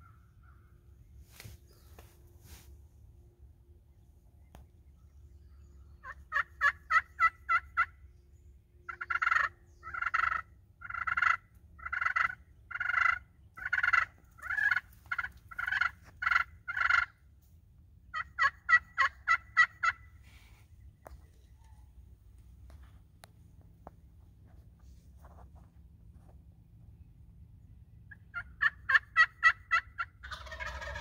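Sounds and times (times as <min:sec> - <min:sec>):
turkey call yelping: 0:06.0 - 0:08.0, 0:08.9 - 0:17.2, 0:18.1 - 0:20.2, 0:28.1 - 0:31.0.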